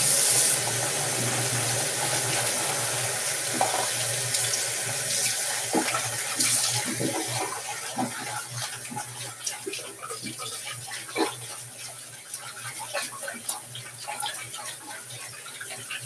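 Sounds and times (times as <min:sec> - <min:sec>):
faucet running into sink: 0:00.0 - 0:16.0
water splashes and knocks: 0:03.4 - 0:04.2, 0:05.6 - 0:14.8.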